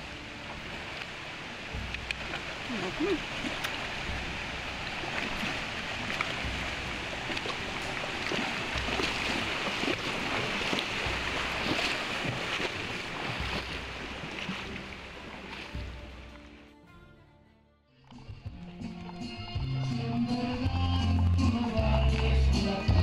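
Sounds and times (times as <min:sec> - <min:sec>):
water rushing over rocks: 0:00.0 - 0:16.6
horses splashing: 0:00.0 - 0:16.7.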